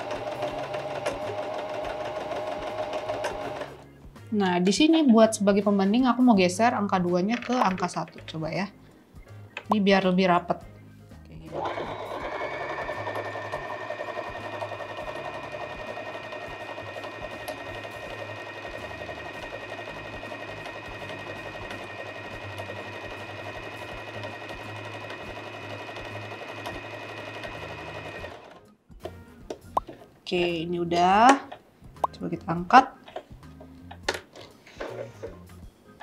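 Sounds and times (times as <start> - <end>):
sewing machine running: 0.0 - 3.8, 11.5 - 28.6.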